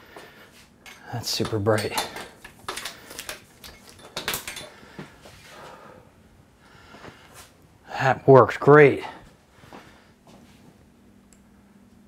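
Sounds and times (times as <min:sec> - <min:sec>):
hard objects clicking and knocking: 0:00.8 - 0:05.0.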